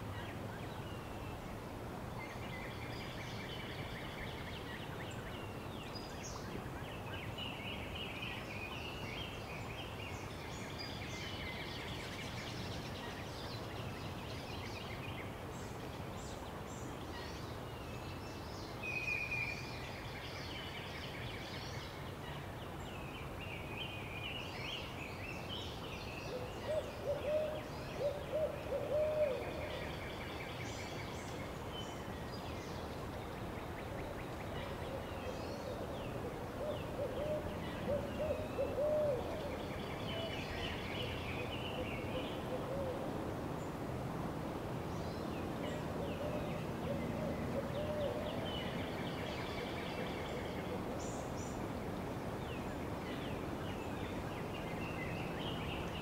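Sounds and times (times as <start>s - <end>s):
background noise: 0.0s - 56.0s
low bird hooting: 35.6s - 39.6s.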